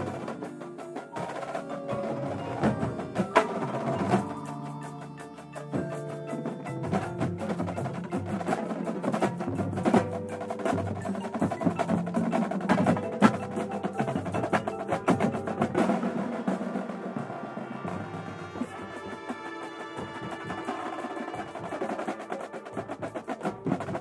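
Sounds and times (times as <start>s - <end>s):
snare drums: 0.0s - 24.0s
tenor drums: 0.0s - 24.0s
marching bass drums: 5.6s - 24.0s.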